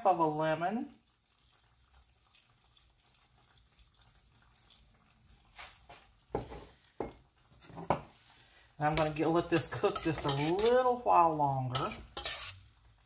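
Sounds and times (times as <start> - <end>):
juice trickling into saucepan: 0.0 - 13.0.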